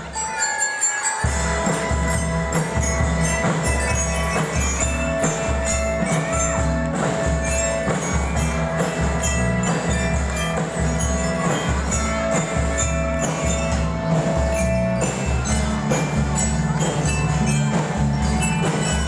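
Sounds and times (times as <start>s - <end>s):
bell lyres and xylophones playing: 0.0s - 19.0s.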